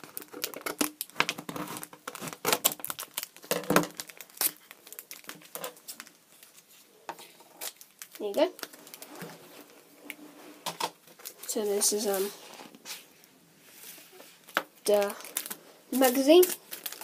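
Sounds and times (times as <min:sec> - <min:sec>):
plastic wrapping crinkling and tearing: 0:00.0 - 0:10.2, 0:11.0 - 0:13.0, 0:14.4 - 0:17.0.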